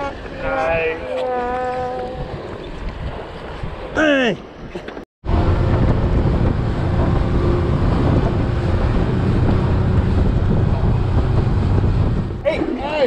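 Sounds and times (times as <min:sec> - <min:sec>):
motorboat engine drone: 0:00.0 - 0:02.5, 0:05.2 - 0:12.4
wind buffeting microphone: 0:00.0 - 0:13.0
hull and spray noise: 0:05.3 - 0:13.0.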